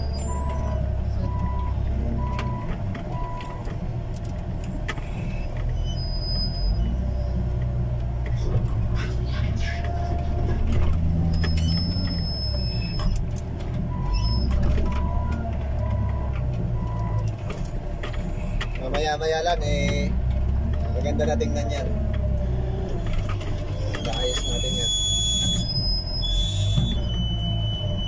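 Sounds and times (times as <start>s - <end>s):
diesel engine under load: 0.0s - 28.0s
short beep: 24.0s - 28.0s.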